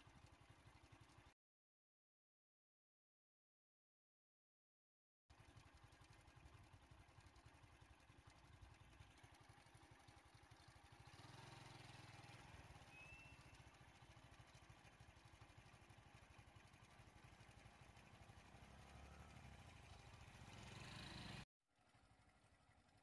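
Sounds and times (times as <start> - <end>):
road traffic engine noise: 10.6 - 21.4
short high whistle: 12.9 - 13.5.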